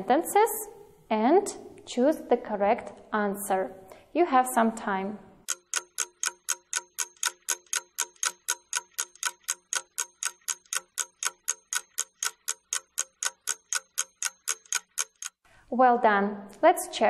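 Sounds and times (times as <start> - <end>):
fast ticking clock: 5.4 - 15.4.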